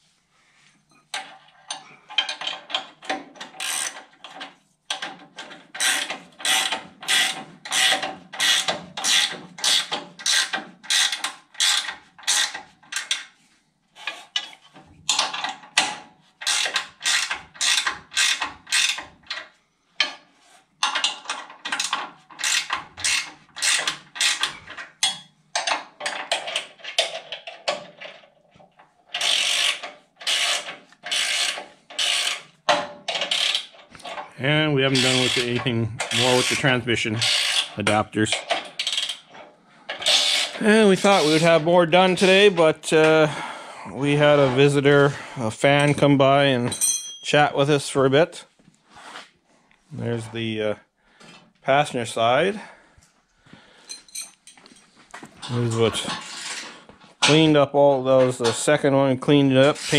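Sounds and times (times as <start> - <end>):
hand ratchet wrench clicking: 2.1 - 5.1, 5.7 - 13.3, 16.4 - 19.4, 20.8 - 27.4, 29.1 - 32.4, 33.1 - 33.7, 37.2 - 37.8, 38.4 - 40.6.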